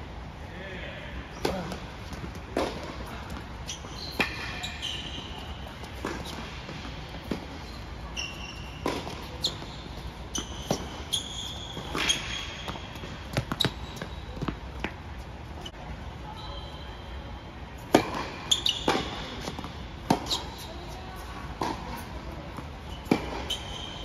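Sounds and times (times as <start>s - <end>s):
sneakers squeaking on court: 1.3s - 17.2s, 17.8s - 24.0s
racket striking ball: 1.4s - 3.4s, 8.8s - 9.6s, 17.9s - 20.5s, 23.0s - 23.6s
ball bouncing: 11.8s - 15.0s.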